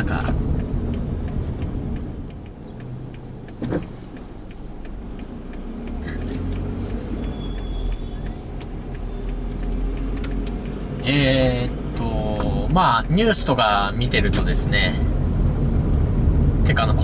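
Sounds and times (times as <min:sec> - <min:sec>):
regular light ticking: 0:00.0 - 0:15.4
car engine and road rumble: 0:00.0 - 0:17.0.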